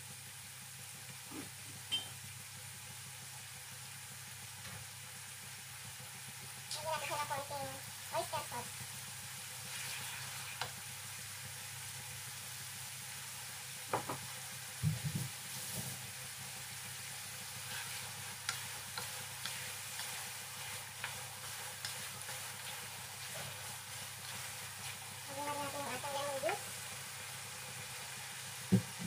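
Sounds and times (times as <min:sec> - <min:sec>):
food sizzling in a wok: 0:00.0 - 0:29.0
spatula scraping and knocking pan: 0:17.6 - 0:25.7.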